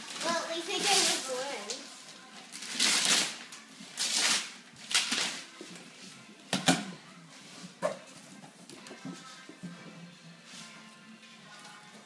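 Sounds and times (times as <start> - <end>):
wrapping paper tearing: 0.0 - 5.6.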